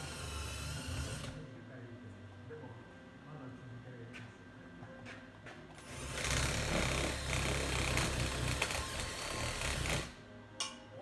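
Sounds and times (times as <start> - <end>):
welding arc buzzing: 5.8 - 10.2.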